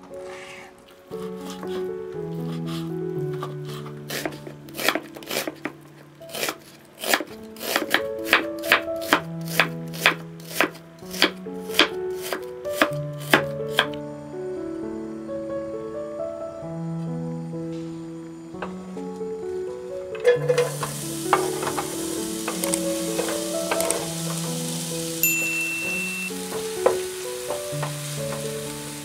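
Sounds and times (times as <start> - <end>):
soft background music: 0.0 - 29.0
knife chopping on wooden board: 4.1 - 5.7, 6.3 - 13.9.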